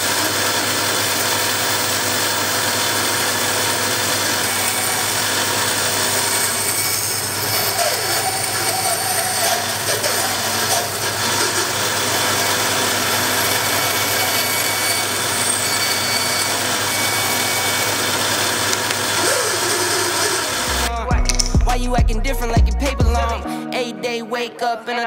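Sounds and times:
bandsaw cutting wood: 0.0 - 22.6.

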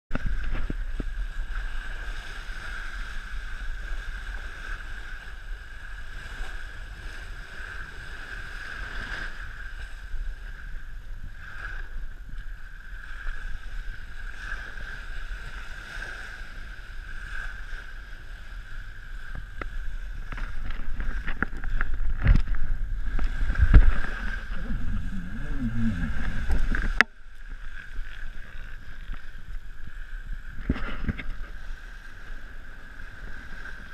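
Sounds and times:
water rushing along hull: 0.1 - 33.9
wind buffeting microphone: 16.6 - 33.9.

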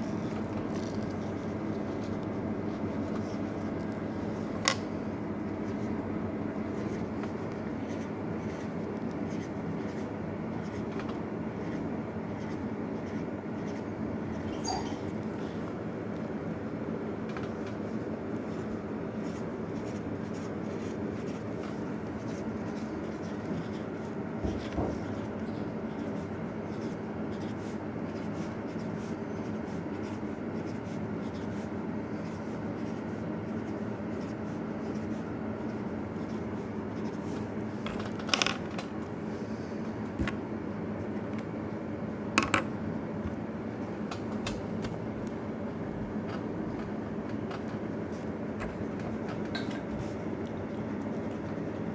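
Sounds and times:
marker scratching on paper: 0.0 - 4.7, 5.4 - 15.5, 17.5 - 37.6
steady background hum: 0.0 - 51.9.

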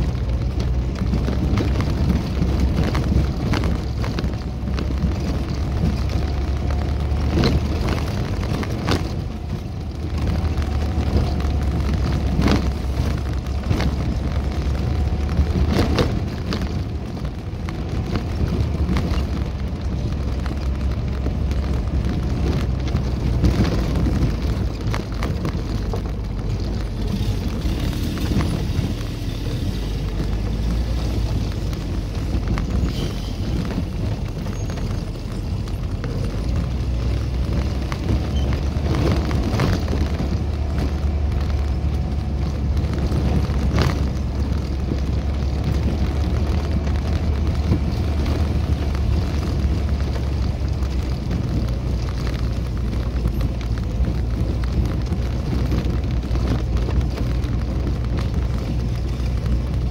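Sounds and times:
knocks and rattles over bumps: 0.0 - 59.9
vehicle engine and road rumble: 0.0 - 59.9.

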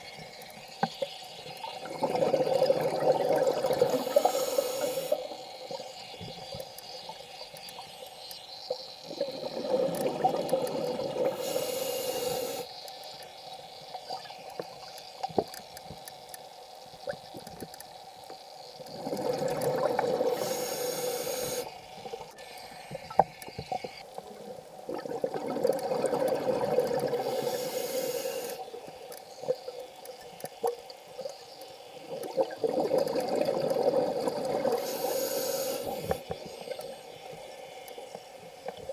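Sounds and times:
exhaled bubbles: 1.6 - 6.0, 9.0 - 11.6, 18.9 - 20.7, 24.9 - 27.7, 32.0 - 36.8
diver breathing through regulator: 11.2 - 12.7, 20.2 - 21.7, 27.1 - 28.6, 34.8 - 36.2.

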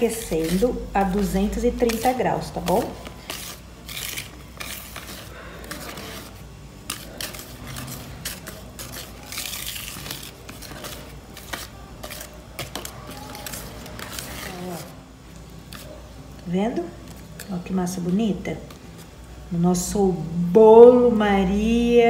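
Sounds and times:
whisk squelching in batter: 0.0 - 15.0.

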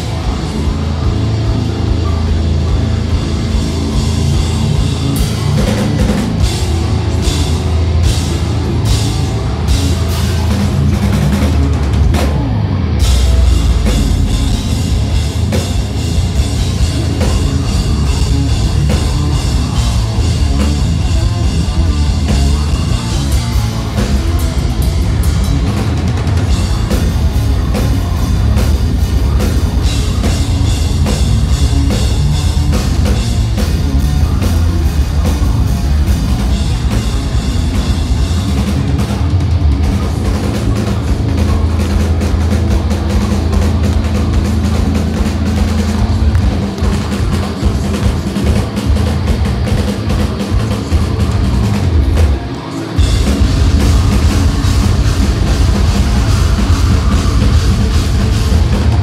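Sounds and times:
metal band playing live: 0.0 - 59.0
vocals: 0.0 - 59.0.

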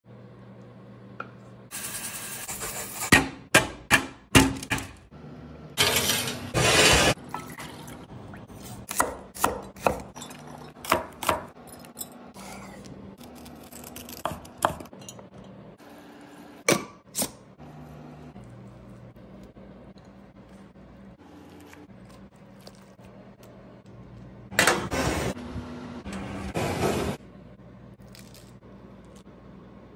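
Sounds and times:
knife chopping on cutting board: 8.9 - 10.1.

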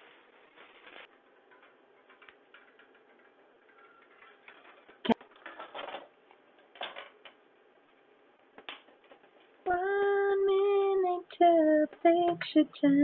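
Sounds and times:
person singing: 9.6 - 13.0.

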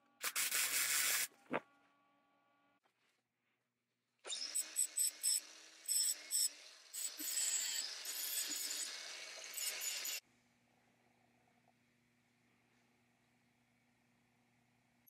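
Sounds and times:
angle grinder grinding steel: 4.3 - 10.2.

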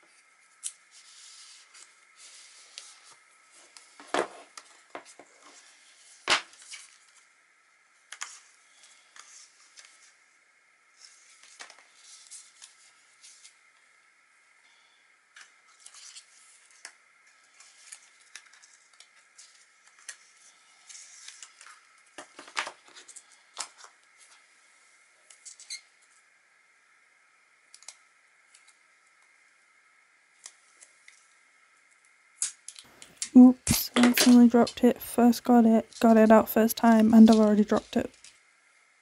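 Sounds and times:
card and plastic rustling: 33.7 - 38.3.

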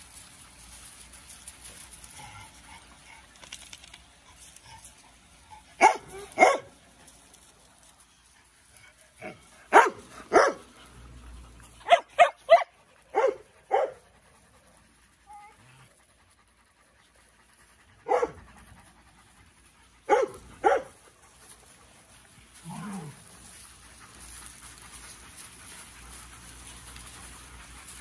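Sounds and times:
dogs barking: 5.8 - 6.8, 9.2 - 10.7, 11.7 - 14.1, 18.0 - 18.7, 20.0 - 21.2.

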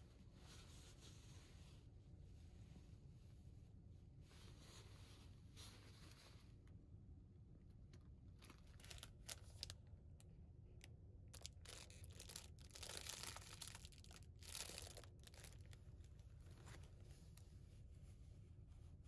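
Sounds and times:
plastic bag crinkling: 8.4 - 9.8, 11.3 - 16.9.

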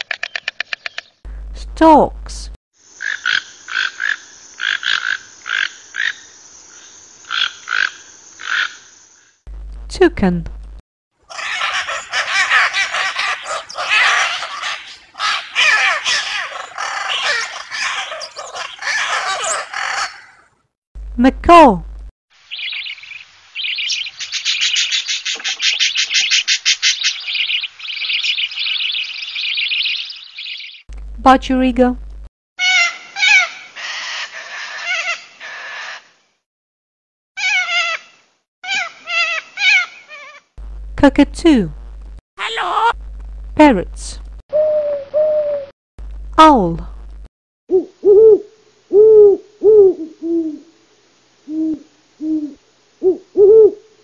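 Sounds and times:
budgerigar chattering: 11.3 - 20.3
cockatoo screeching: 11.3 - 20.5, 32.6 - 36.1, 37.4 - 40.5, 42.4 - 43.0
macaw squawking: 11.3 - 20.5, 32.6 - 36.1, 37.4 - 40.5.

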